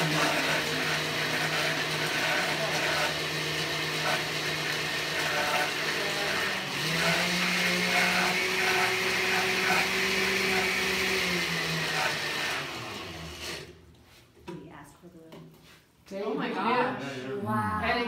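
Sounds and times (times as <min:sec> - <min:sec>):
electric mixer motor hum: 0:00.0 - 0:13.7.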